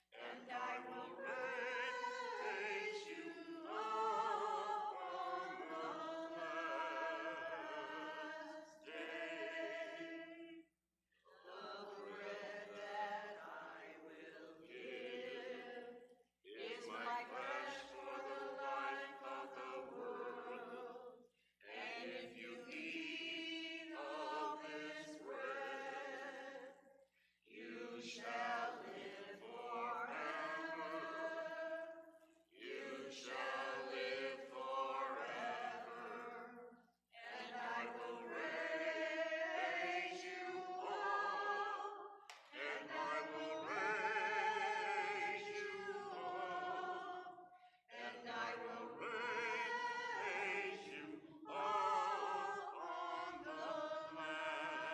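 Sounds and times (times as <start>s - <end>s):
person singing a hymn: 0.0s - 10.2s, 21.7s - 26.4s, 27.6s - 31.8s, 32.6s - 36.5s, 37.2s - 47.3s, 47.9s - 54.9s.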